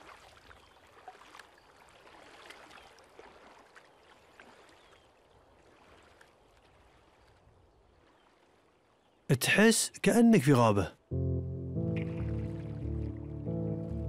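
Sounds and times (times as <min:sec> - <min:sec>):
paddles dipping and dripping: 0:00.0 - 0:09.0, 0:11.9 - 0:13.5
light ticks and splashes: 0:00.0 - 0:09.1.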